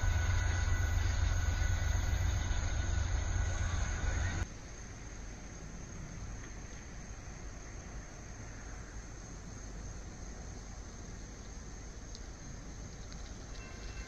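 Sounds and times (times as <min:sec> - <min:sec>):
freight train rumbling: 0:00.0 - 0:04.5.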